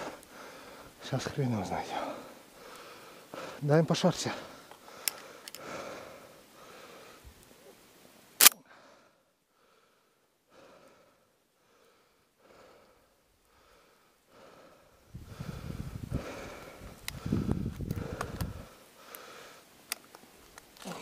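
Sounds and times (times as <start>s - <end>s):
sharp click: 8.4s - 8.6s.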